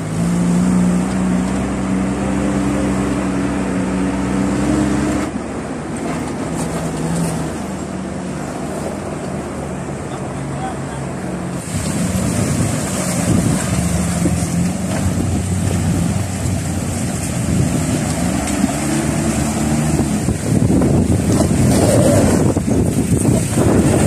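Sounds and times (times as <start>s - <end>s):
engines running and revving: 0.0s - 24.0s
rushing stream water: 0.0s - 24.0s
wind noise on microphone: 11.6s - 24.0s.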